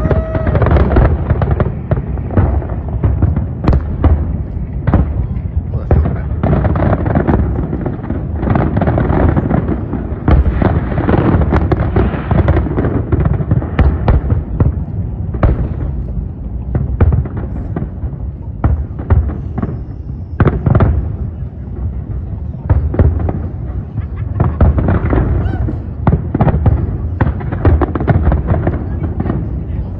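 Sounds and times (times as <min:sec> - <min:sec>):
fireworks crackling and banging: 0:00.0 - 0:29.9.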